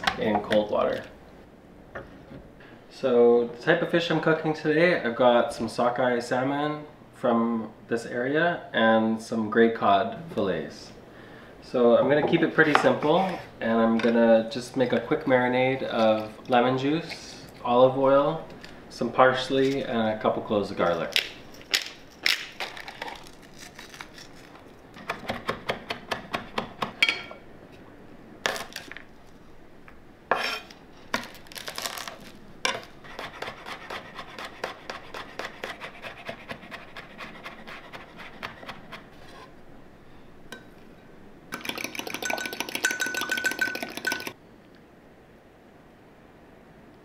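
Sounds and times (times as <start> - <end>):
utensils clinking against glass cup: 41.6 - 44.4.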